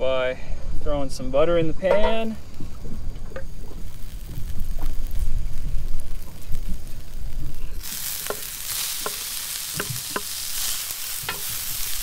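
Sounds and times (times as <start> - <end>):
butter sizzling in frying pan: 2.4 - 12.0.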